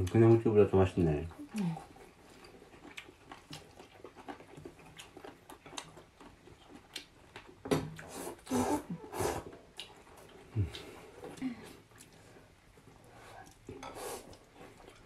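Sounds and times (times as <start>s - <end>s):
wet chewing and mouth clicks: 1.3s - 15.0s
noodle slurps: 8.0s - 9.6s.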